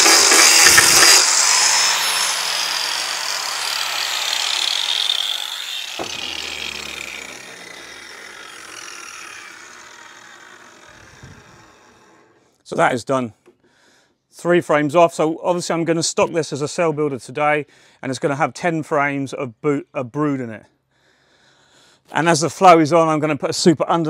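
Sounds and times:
power grinder whine: 0.0 - 12.6
sharp knock: 6.0 - 7.6.

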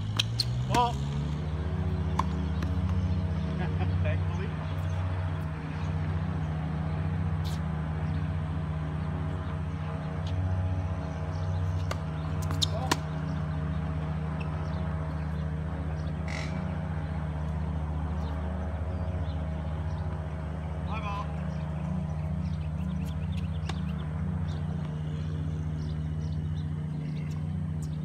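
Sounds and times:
tennis ball struck by rackets: 0.0 - 1.0, 2.0 - 3.0, 11.8 - 13.4
steady low hum: 0.0 - 28.0
ball bouncing on hard court: 2.0 - 3.0, 11.8 - 13.2.

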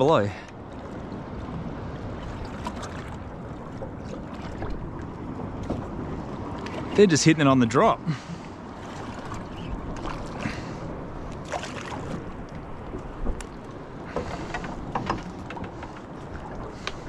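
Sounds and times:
sea water around boat: 0.0 - 17.0
faint clicks and knocks: 12.4 - 17.0.

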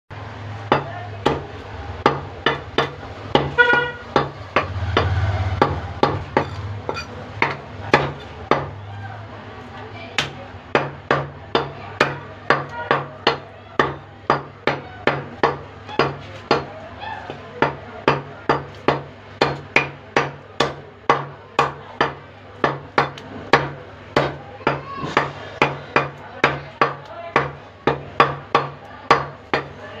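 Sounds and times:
knife chopping on wooden block: 0.7 - 8.7, 10.2 - 16.7.

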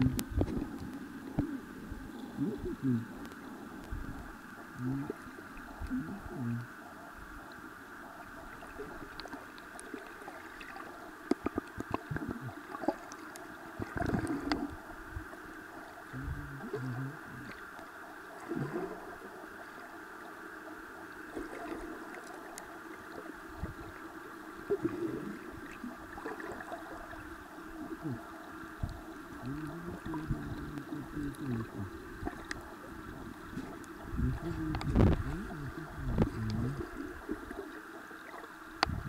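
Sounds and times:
shallow seawater sloshing: 8.1 - 11.7, 21.2 - 38.7
small splashes and clicks: 8.4 - 14.8, 21.3 - 23.3, 28.8 - 32.7, 33.5 - 38.9.

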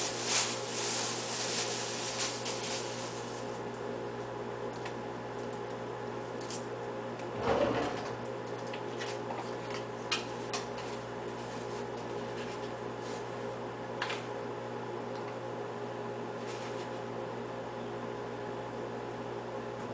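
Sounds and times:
soft rustle: 0.0 - 3.6
mechanical hum: 0.0 - 19.9.

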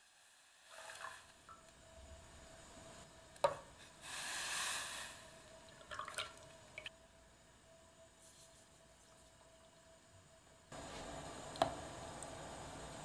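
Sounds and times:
hissing noise: 3.7 - 5.5.

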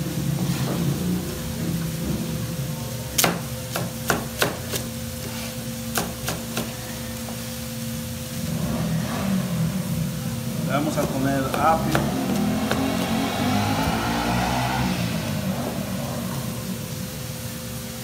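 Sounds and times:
knife chopping on cutting board: 3.2 - 6.8, 10.9 - 14.2
steady low hum: 7.1 - 18.0.

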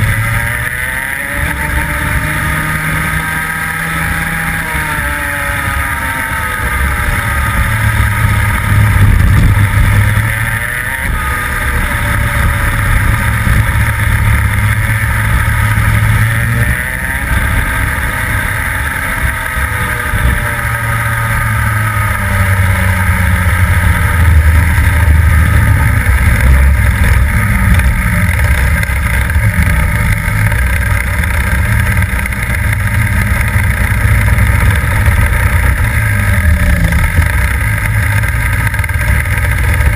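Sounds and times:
kart engine at racing speed: 0.0 - 39.9.

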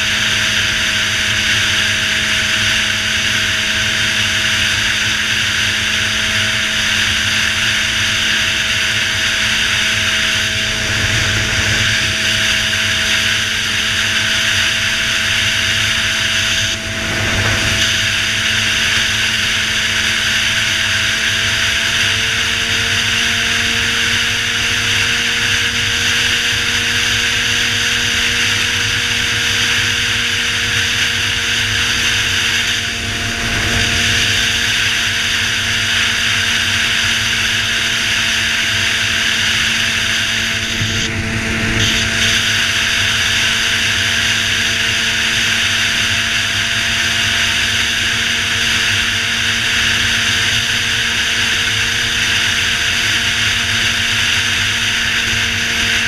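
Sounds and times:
motorcycle engine cruising: 0.0 - 56.0
wind on microphone: 7.3 - 21.4, 30.2 - 46.8.

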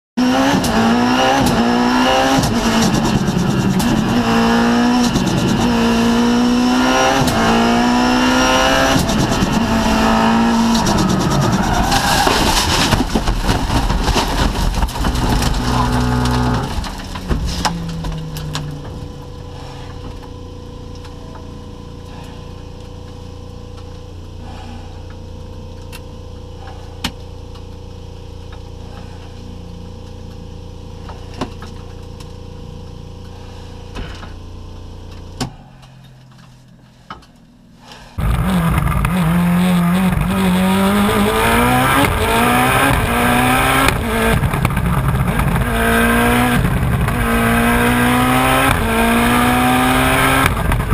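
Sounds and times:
race car engine at full throttle: 0.2 - 50.9
low cabin hum: 7.2 - 27.7.

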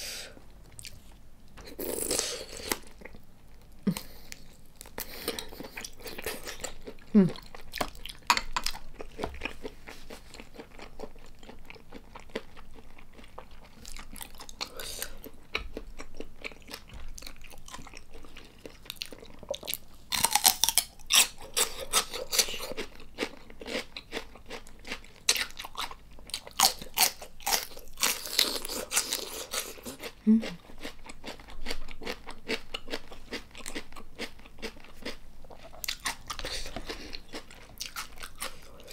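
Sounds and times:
wet chewing: 3.9 - 38.9
crisp celery crunches: 18.7 - 30.2.

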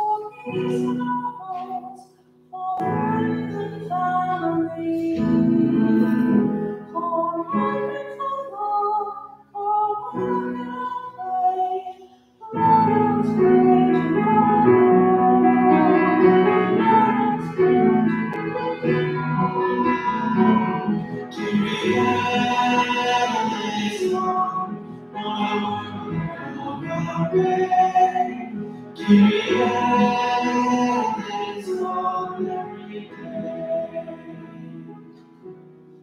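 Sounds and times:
congregation singing a hymn: 10.1 - 35.4
instrumental accompaniment: 12.6 - 36.0.

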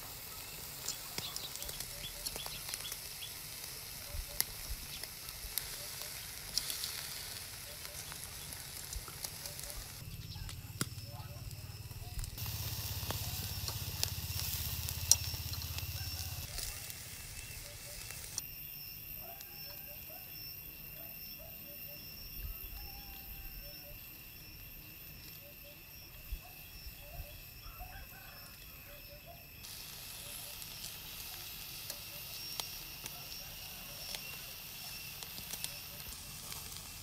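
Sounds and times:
skewers sizzling on grill: 0.0 - 18.7, 24.4 - 37.0
charcoal crackling: 0.0 - 19.8, 27.4 - 37.0.

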